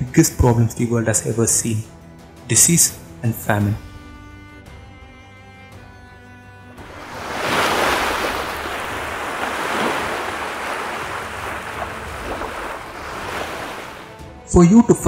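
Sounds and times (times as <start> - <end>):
ocean waves washing: 6.7 - 14.4.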